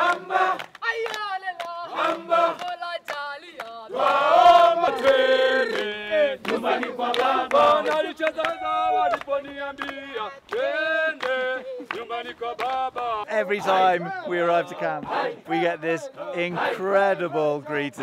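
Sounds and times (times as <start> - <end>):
hand claps keeping time: 0.0 - 3.8, 4.4 - 13.2
men singing and chanting: 0.0 - 18.0.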